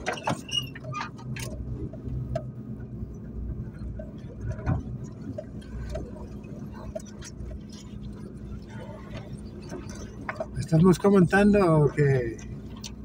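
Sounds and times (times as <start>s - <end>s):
car engine running low: 0.0s - 13.0s.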